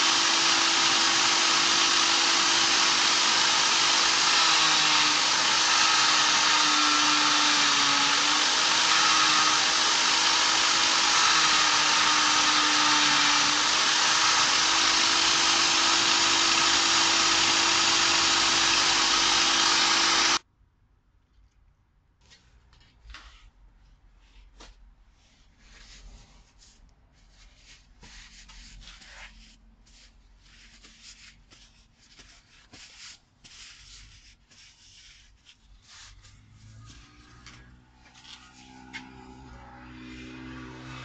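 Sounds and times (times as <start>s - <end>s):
hand rubbing and scraping: 22.2s - 41.0s
low motor hum: 36.3s - 41.0s.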